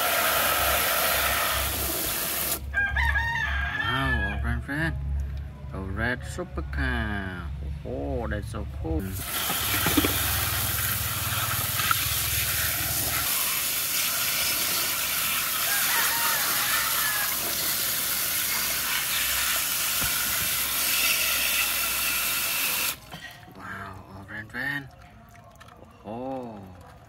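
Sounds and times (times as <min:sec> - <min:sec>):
hose nozzle spraying water: 0:00.0 - 0:02.7, 0:09.0 - 0:23.1.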